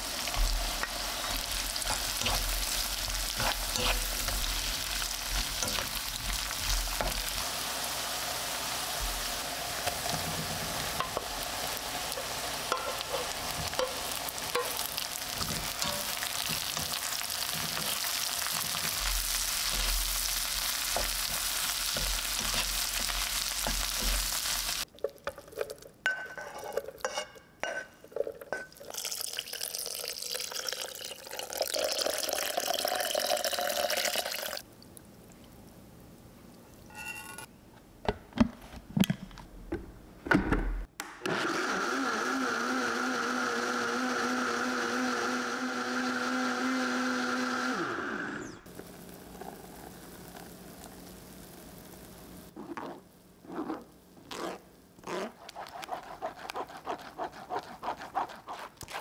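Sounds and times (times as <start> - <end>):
electric blender running: 41.2 - 48.7.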